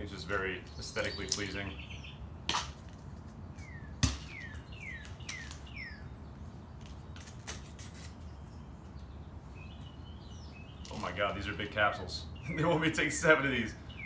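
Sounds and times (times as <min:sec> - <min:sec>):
bird calling: 0:00.6 - 0:02.3, 0:03.6 - 0:06.4, 0:08.3 - 0:14.0.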